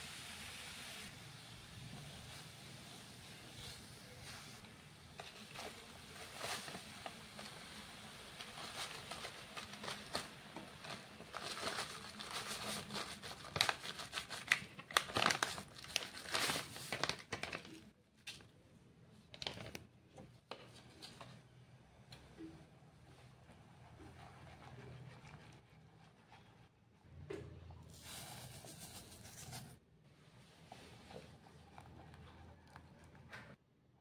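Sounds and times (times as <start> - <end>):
plastic sachet crinkling: 8.3 - 17.9.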